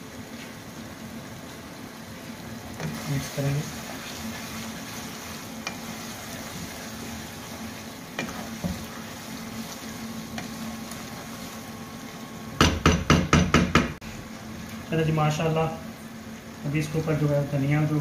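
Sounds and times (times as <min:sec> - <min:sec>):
chicken sizzling in a frying pan: 0:00.0 - 0:18.0
spatula knocking against pan: 0:12.6 - 0:14.0.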